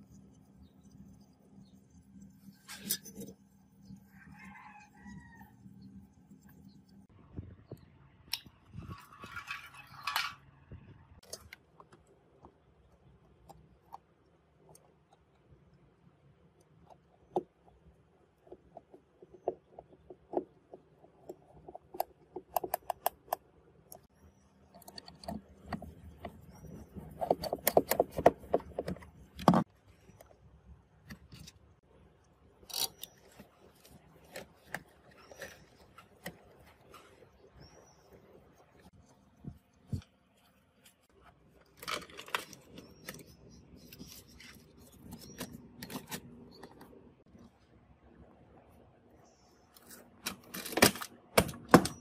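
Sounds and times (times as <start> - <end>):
plastic parts clicking and knocking: 16.5 - 24.1, 24.7 - 30.4, 41.6 - 47.0, 50.2 - 52.0.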